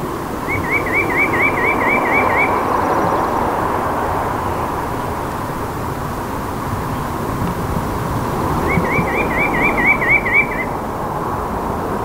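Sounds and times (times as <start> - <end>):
steady rushing noise: 0.0 - 12.0
bird singing: 0.4 - 5.4, 8.4 - 10.9.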